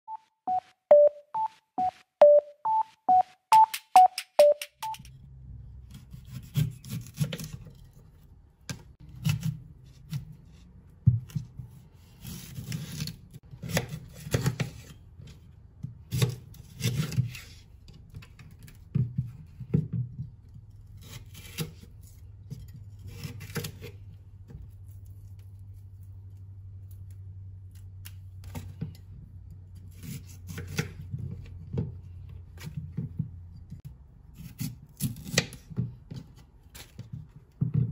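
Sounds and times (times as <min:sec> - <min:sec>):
knife scraping and cutting: 0:05.9 - 0:08.3, 0:09.0 - 0:10.6, 0:11.3 - 0:15.4, 0:16.1 - 0:18.8, 0:20.5 - 0:27.0, 0:29.7 - 0:31.5, 0:34.3 - 0:37.2.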